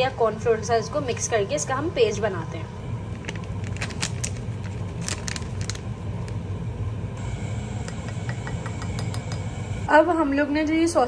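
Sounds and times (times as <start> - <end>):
steady low hum: 0.0 - 11.0
foil sachet crinkling: 3.1 - 6.4.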